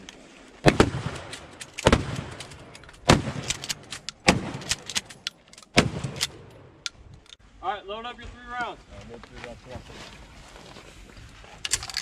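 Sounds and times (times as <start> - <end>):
shotgun shots: 0.6 - 5.1, 5.7 - 6.5
shotgun pump clacking: 11.6 - 12.0.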